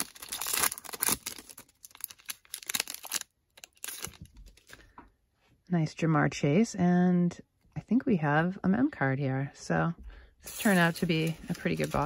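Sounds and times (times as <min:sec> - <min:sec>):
foil wrapper crinkling: 0:00.0 - 0:04.8, 0:10.5 - 0:12.0
cards rustling: 0:10.5 - 0:12.0.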